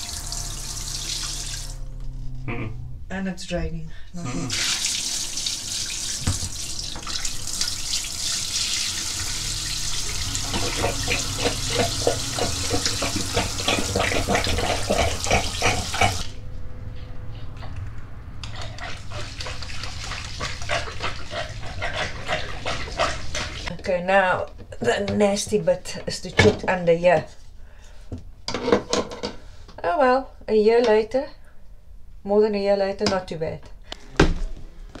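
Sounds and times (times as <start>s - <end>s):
water draining through shower drain: 0.0s - 1.8s, 4.5s - 16.3s, 18.4s - 23.7s
low steady hum: 0.0s - 4.6s.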